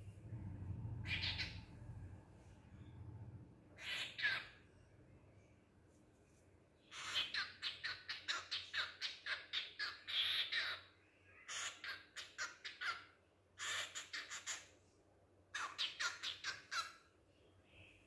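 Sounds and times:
cockatiel chirping: 1.0 - 1.7, 3.8 - 4.6, 6.9 - 14.7, 15.6 - 17.0.

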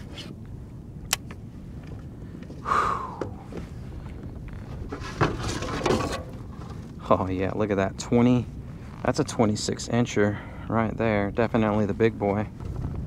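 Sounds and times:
wind rumbling on microphone: 0.0 - 13.0
sharp click: 1.1 - 1.4
handling noises: 3.2 - 7.0.

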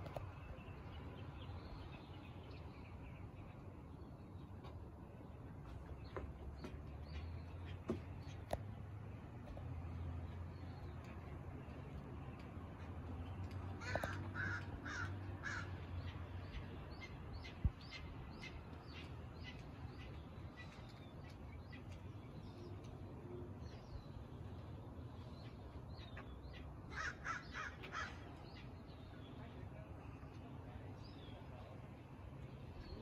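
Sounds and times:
crows cawing: 13.8 - 15.9, 26.9 - 28.2.

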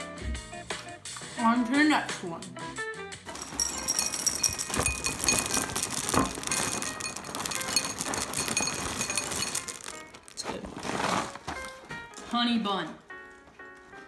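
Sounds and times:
cereal pouring into ceramic bowl: 3.3 - 11.7.

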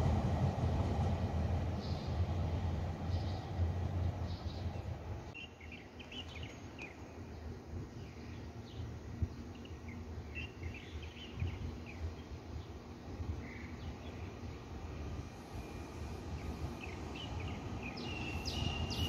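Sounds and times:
distant train rumble: 0.0 - 19.0
small birds chirping: 3.0 - 14.7, 16.3 - 19.0.

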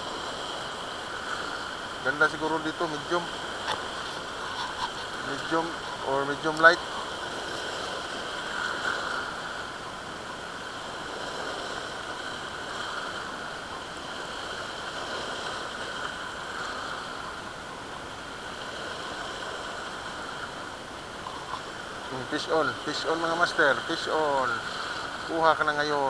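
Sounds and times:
surf washing over rocks: 0.0 - 26.0.

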